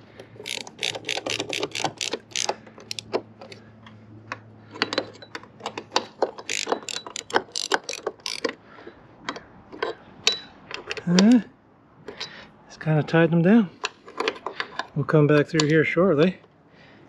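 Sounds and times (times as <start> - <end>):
ratchet wrench clicking: 0.4 - 3.6, 6.1 - 8.6.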